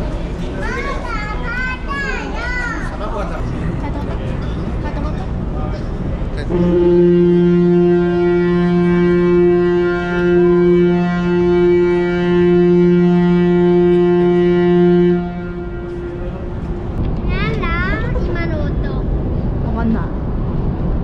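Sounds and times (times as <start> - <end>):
ship horn blast: 6.4 - 18.2.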